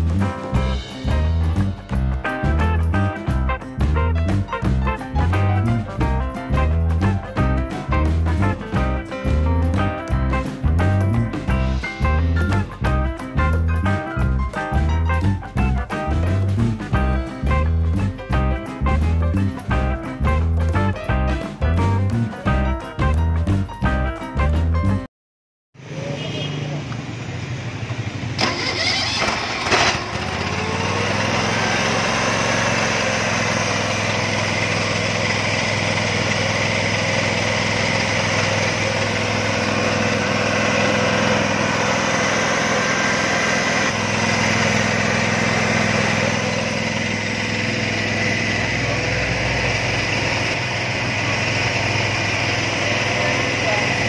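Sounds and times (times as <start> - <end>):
engine cranking and running: 28.3 - 54.0.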